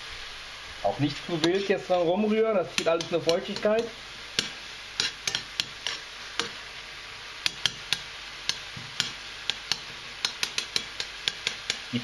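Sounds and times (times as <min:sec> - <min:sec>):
food sizzling in butter: 0:00.0 - 0:12.0
metal spoon clicking on pan: 0:02.8 - 0:06.6, 0:07.4 - 0:11.9.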